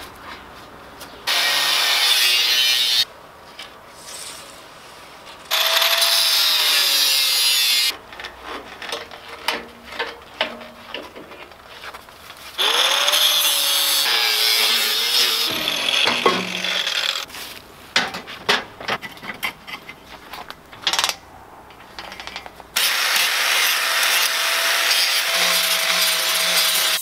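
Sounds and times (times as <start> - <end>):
angle grinder cutting steel: 1.3 - 3.1, 5.5 - 7.9, 12.6 - 17.3, 22.8 - 27.0
metal clinks and knocks: 20.7 - 22.6.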